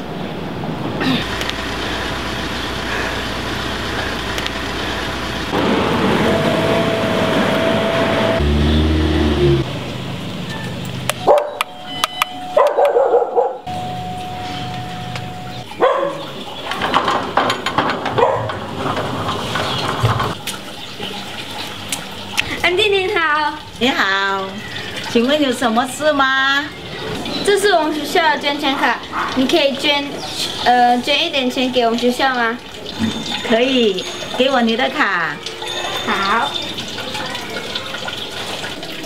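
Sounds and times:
dog barking: 10.5 - 11.6, 12.6 - 13.7, 15.8 - 16.3, 18.2 - 18.6, 28.7 - 29.4
electric doorbell ringing: 11.2 - 13.0, 13.7 - 15.6.

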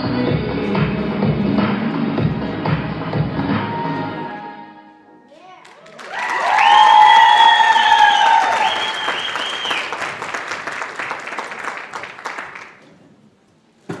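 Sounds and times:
audience applauding: 5.6 - 12.8
high whooping cheers: 5.8 - 10.0.

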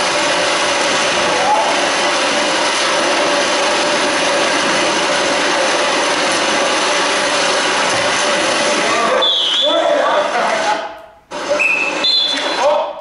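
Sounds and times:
water splashing and churning: 0.0 - 9.1.

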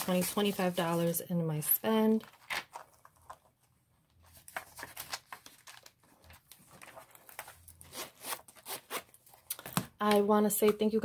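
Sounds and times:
banknotes rustling: 0.0 - 9.4.

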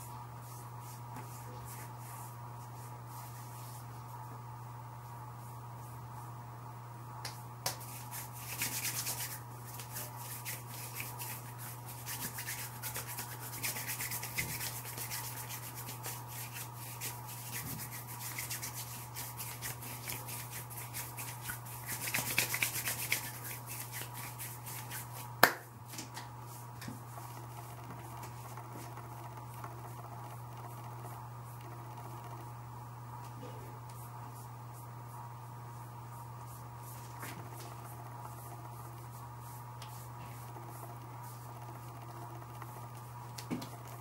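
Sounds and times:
hands brushing and rustling: 7.8 - 25.4
low hum: 26.4 - 44.0.

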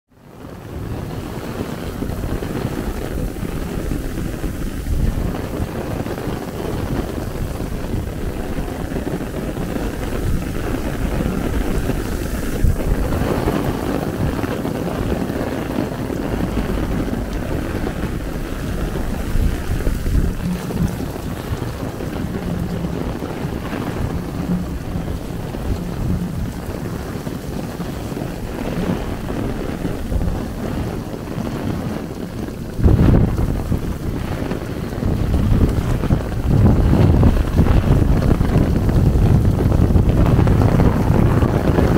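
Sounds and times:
heavy rain on an umbrella: 0.1 - 41.9
wind buffeting microphone: 0.1 - 41.9.

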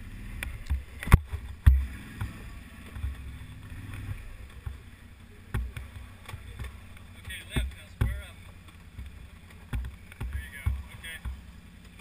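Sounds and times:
atv engine running at low throttle: 0.0 - 12.0
sharp knocks: 5.5 - 11.5.

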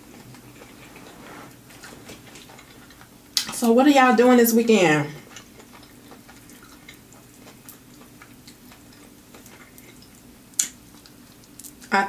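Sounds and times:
faint steady hum: 0.0 - 12.0
wet clicks of eating chicken: 5.4 - 11.9.

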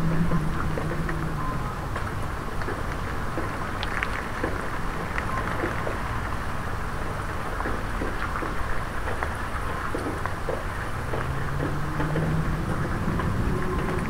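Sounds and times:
low rumble: 0.0 - 3.9, 11.2 - 14.0
raindrops ticking on puddle: 0.0 - 14.0
steady hiss of rain: 0.0 - 14.0.

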